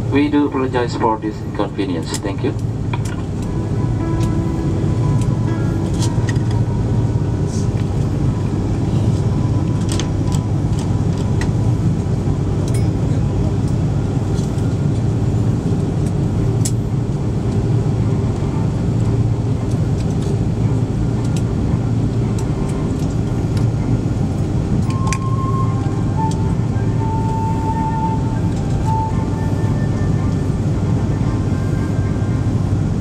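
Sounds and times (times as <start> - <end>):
airplane taxiing rumble: 0.0 - 33.0
melody of short held notes: 3.3 - 10.6, 24.0 - 32.9.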